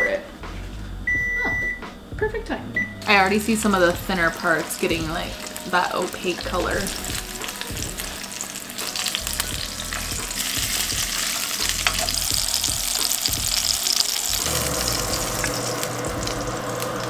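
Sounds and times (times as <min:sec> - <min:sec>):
fish sizzling in hot oil: 0:03.4 - 0:17.0.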